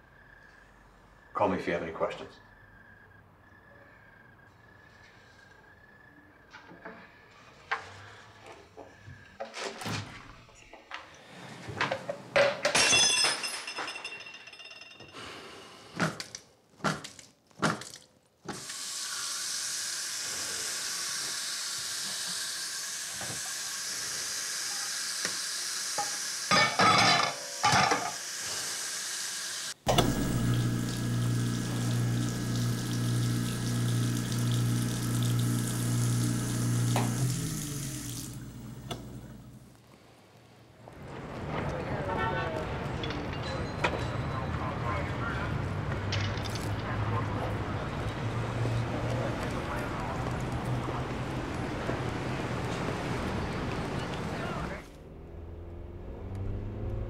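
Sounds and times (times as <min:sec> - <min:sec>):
tap water running: 0:18.5 - 0:39.7
clattering at a sink: 0:26.5 - 0:28.2
motor humming: 0:29.9 - 0:39.7.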